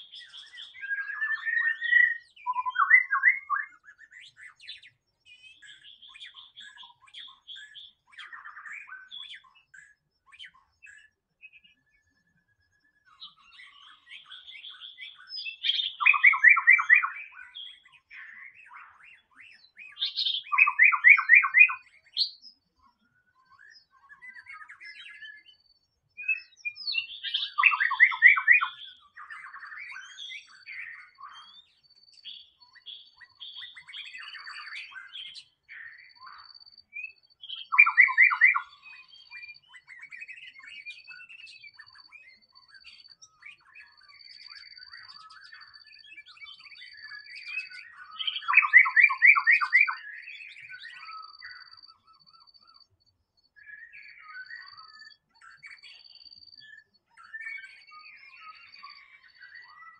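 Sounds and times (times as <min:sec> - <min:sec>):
bird song of fast repeated notes: 0:00.0 - 0:59.9
bird whistles and chirps: 0:00.0 - 0:59.9.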